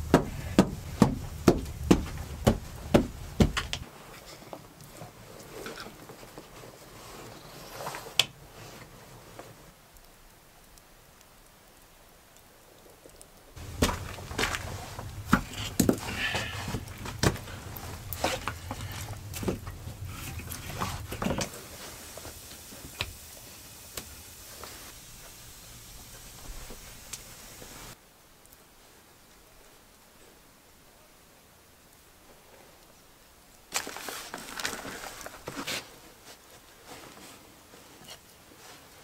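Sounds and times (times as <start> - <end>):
stones clacking and scraping: 13.6 - 21.5, 33.7 - 35.9.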